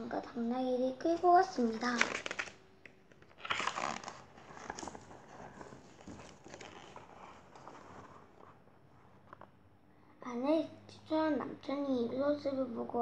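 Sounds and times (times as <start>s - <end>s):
book pages rustling: 1.6s - 9.6s.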